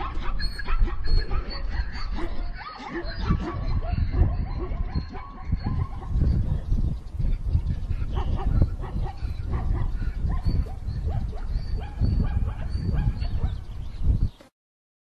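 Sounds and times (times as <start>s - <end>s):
animal yelping: 0.0s - 6.5s.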